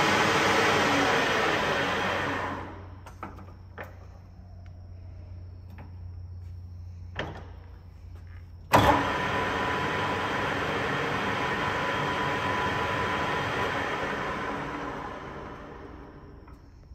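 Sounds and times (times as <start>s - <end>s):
lathe running with gear whine: 0.0s - 2.8s, 8.8s - 16.5s.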